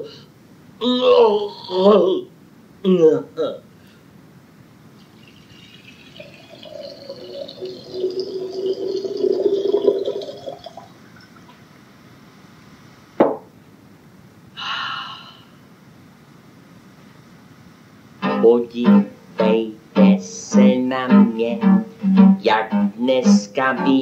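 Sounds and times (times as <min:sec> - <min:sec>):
liquid poured into glass: 0:05.0 - 0:11.5.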